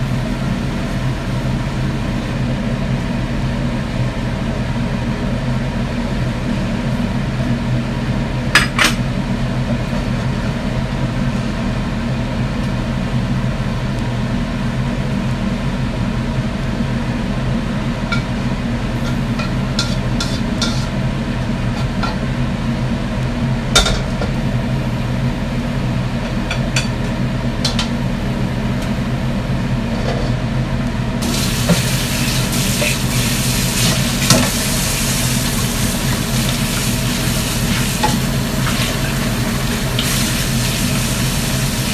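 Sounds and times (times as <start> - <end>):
range hood fan humming: 0.0 - 41.9
tap running: 31.2 - 41.9.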